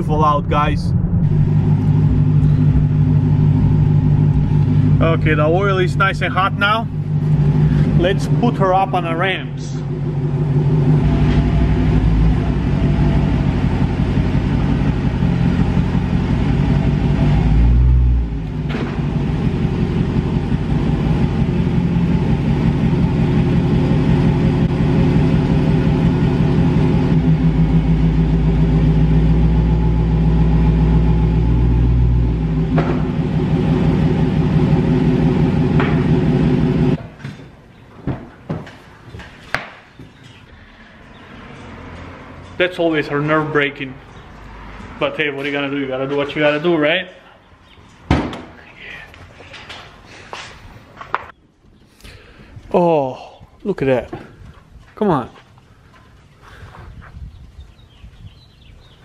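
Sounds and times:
car engine running: 0.0 - 37.0.

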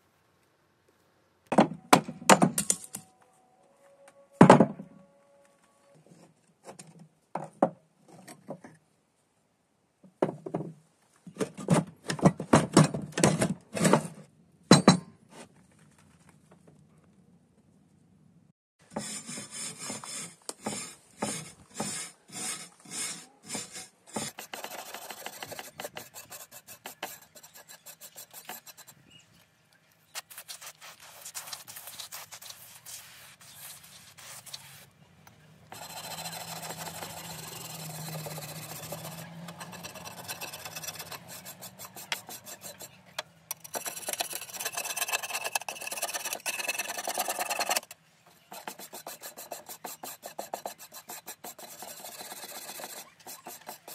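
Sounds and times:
hand scraper scraping steel plate: 18.9 - 29.0, 35.7 - 53.9.

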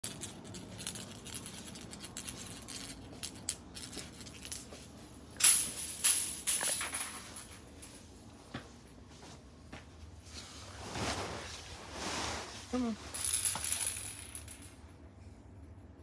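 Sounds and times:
fabric rustling: 10.2 - 13.2.

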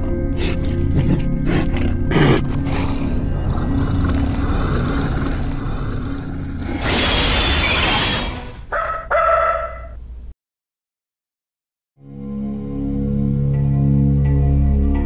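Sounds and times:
low rumbling drone: 0.0 - 6.9
animal-like cry: 1.5 - 10.0.

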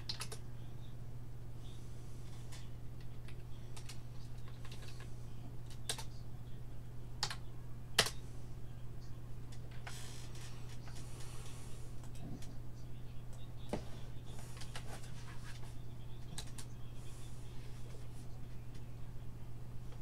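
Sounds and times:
computer keyboard typing: 0.0 - 0.4, 2.5 - 5.1, 5.8 - 6.1, 16.2 - 16.7
steady low hum: 0.0 - 20.0.

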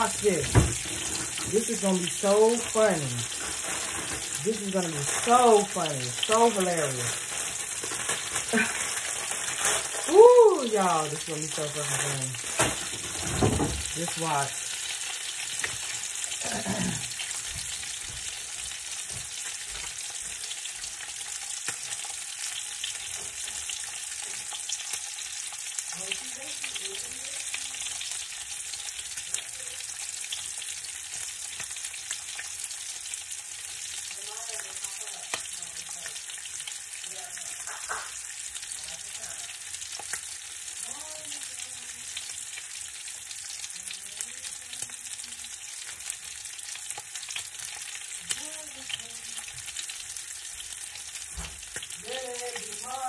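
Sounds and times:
food sizzling in a pan: 0.0 - 53.0.

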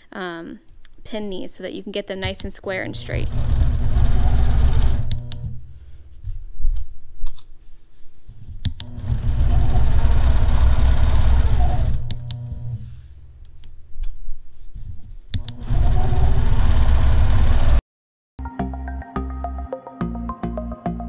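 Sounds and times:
quilting machine stitching: 3.0 - 5.6, 8.8 - 12.8, 15.4 - 17.8.

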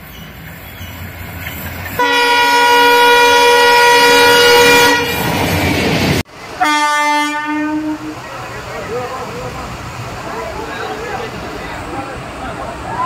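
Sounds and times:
diesel locomotive rumble: 0.0 - 13.0
electric locomotive horn: 2.0 - 5.2, 6.6 - 8.2
locomotive horn blast: 2.0 - 5.2, 6.6 - 8.3.

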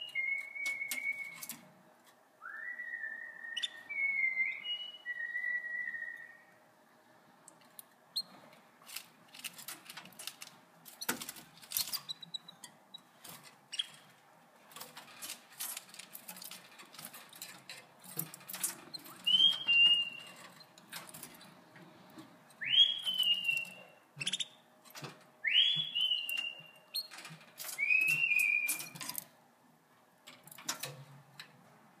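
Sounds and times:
canary whistled calls: 0.0 - 1.5, 2.4 - 6.5, 19.2 - 20.4, 22.6 - 24.6, 25.4 - 27.1, 27.8 - 29.0
birds hopping on cage wire: 7.6 - 29.4.

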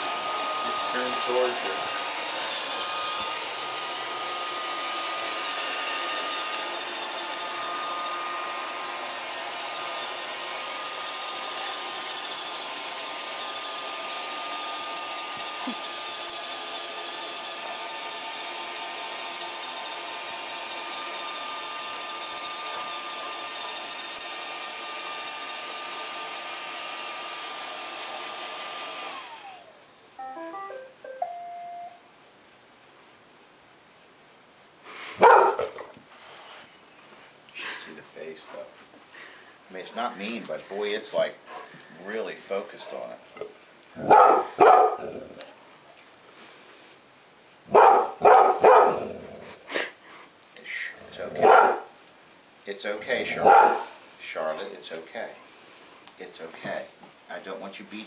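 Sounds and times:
robot vacuum whirring hum: 0.0 - 29.8.

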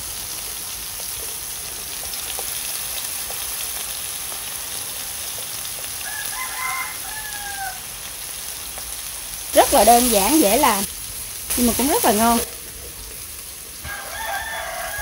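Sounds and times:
mushrooms sizzling in oil: 0.0 - 15.0
rooster crowing: 6.0 - 8.0, 13.8 - 15.0.

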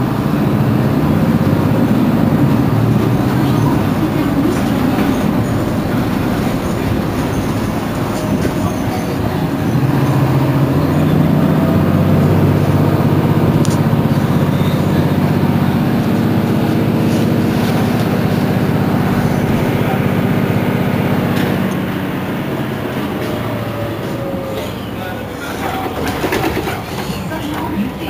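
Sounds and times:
bus engine droning: 0.0 - 28.0.

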